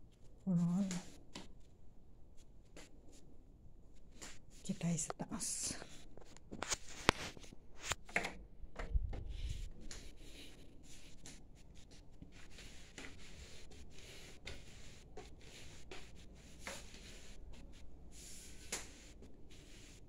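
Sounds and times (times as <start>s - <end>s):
phone rubbing and scuffing: 5.8s - 20.0s.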